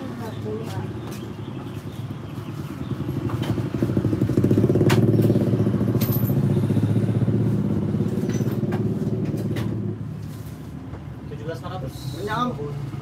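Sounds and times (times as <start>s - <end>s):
motorcycle engine starting and running: 1.5s - 10.7s.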